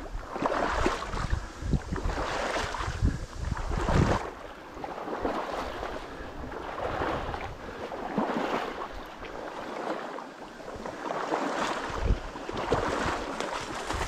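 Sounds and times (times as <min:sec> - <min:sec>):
water sloshing and splashing: 0:00.0 - 0:14.0.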